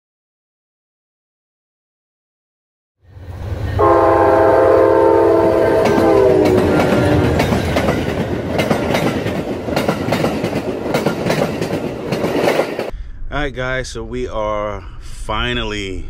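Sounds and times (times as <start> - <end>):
locomotive multi-note horn: 3.4 - 7.5
train wheels clacking over rails: 5.5 - 12.9.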